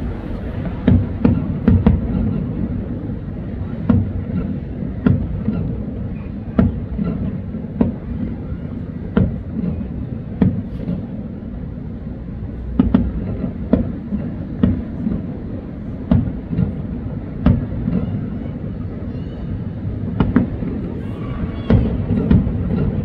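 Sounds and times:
low rumble: 0.0s - 23.0s
fireworks bursting: 12.5s - 23.0s.

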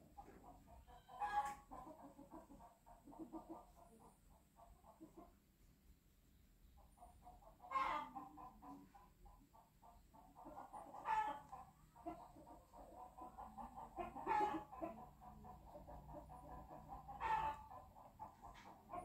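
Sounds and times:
chickens clucking: 0.0s - 19.0s
loud chicken calls: 7.6s - 8.8s, 10.6s - 15.0s, 16.2s - 19.0s.

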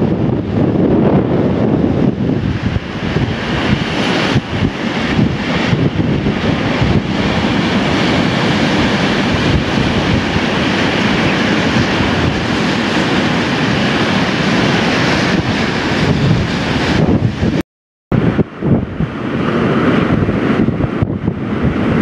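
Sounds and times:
storm waves breaking on rocks: 0.0s - 17.6s
gale wind on microphone: 0.0s - 22.0s.

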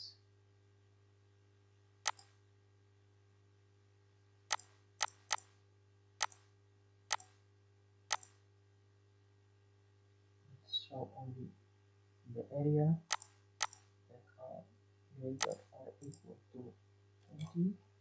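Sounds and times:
faint low hum: 0.0s - 18.0s
computer mouse clicking: 2.1s - 2.3s, 4.5s - 5.5s, 6.2s - 6.5s, 7.1s - 7.3s, 8.1s - 8.4s, 13.1s - 13.9s, 15.4s - 16.2s.

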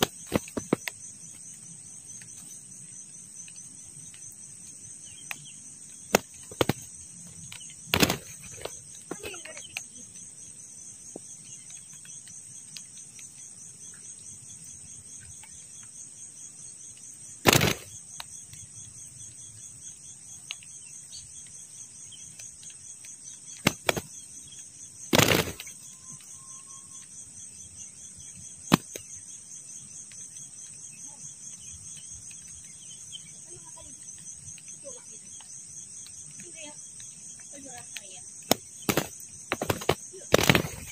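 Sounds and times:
dove wing slaps: 0.0s - 1.0s, 6.1s - 6.9s, 7.5s - 9.8s, 17.4s - 18.0s, 23.5s - 24.2s, 25.1s - 25.9s, 28.7s - 29.1s, 38.4s - 40.9s
insects chirring: 0.0s - 40.9s.

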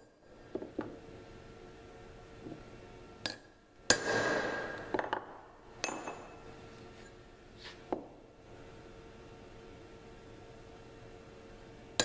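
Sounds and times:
hammer tapping punch on steel: 3.2s - 5.2s.

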